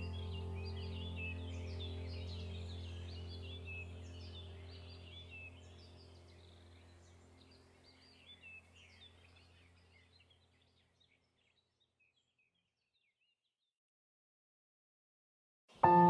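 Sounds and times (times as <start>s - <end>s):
low steady drone: 0.0s - 8.6s
faint birdsong chirps: 0.0s - 13.8s.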